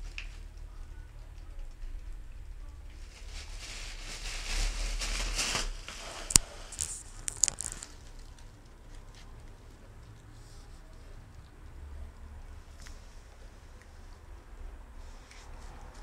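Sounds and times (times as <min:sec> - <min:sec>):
plastic bag rustling: 0:02.8 - 0:09.0.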